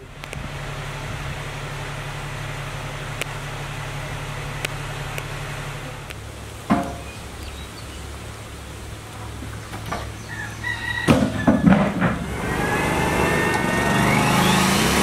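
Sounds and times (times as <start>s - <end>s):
sharp knocks: 6.7s - 7.1s, 11.0s - 12.4s
rooster crowing: 10.1s - 15.0s
circular saw whining: 10.2s - 15.0s.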